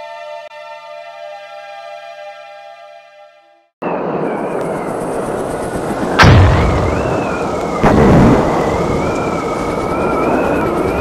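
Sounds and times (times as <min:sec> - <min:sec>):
heavy booms: 0:06.2 - 0:09.0.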